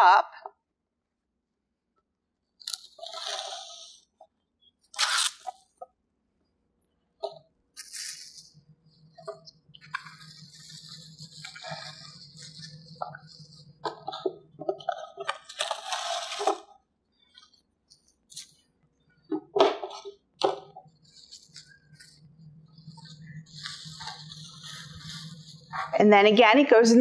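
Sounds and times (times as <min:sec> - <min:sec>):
plastic cling wrap crinkling: 0:07.8 - 0:18.7, 0:21.0 - 0:26.0.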